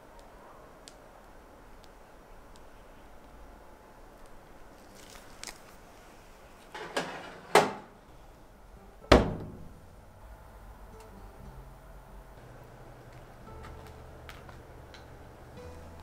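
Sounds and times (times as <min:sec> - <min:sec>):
baking tray scraping and clattering: 0:06.7 - 0:07.9
oven door shutting thud: 0:06.8 - 0:07.9, 0:09.1 - 0:09.9.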